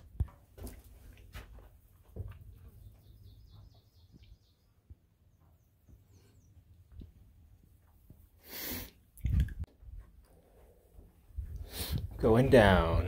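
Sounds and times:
songbird singing: 2.3s - 7.7s.

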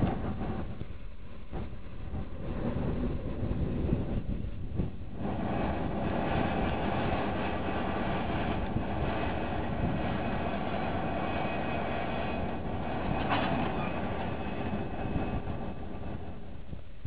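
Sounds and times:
diesel locomotive engine drone: 0.0s - 17.0s.

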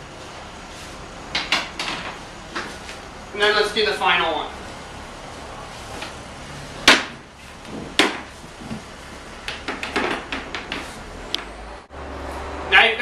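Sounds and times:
floorboard knocking against boards: 9.6s - 10.9s.

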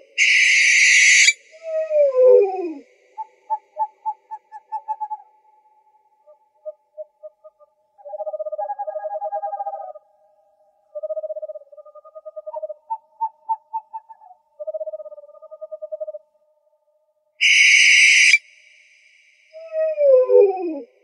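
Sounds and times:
owl hoots: 0.0s - 10.0s, 10.9s - 16.2s, 19.6s - 21.0s
owl trilled calls: 0.0s - 10.0s, 10.9s - 16.2s, 17.4s - 18.8s.

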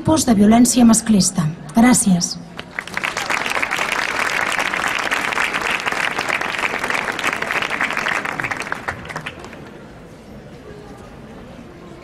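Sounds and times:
audience applauding: 2.6s - 9.9s.

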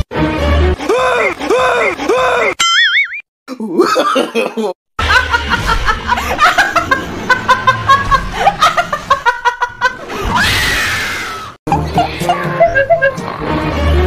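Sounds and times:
woman laughing hard: 3.8s - 10.3s, 11.7s - 13.2s.

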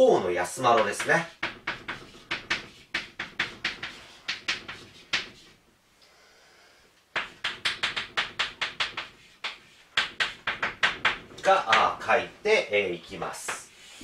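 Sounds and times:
chalk scraping on blackboard: 0.7s - 5.6s, 7.2s - 11.2s.

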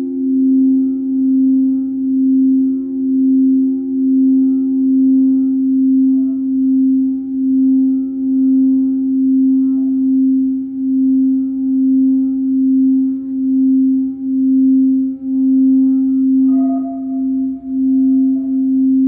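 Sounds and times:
crystal singing bowls: 0.0s - 19.0s.

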